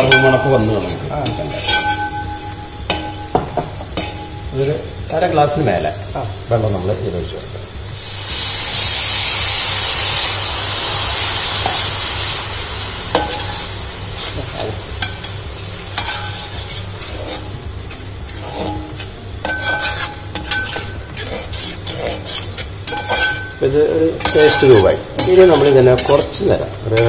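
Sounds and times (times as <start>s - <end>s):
ladle scraping and clinking pan: 0.0s - 4.8s, 16.0s - 27.0s
water sizzling in hot pan: 0.0s - 27.0s.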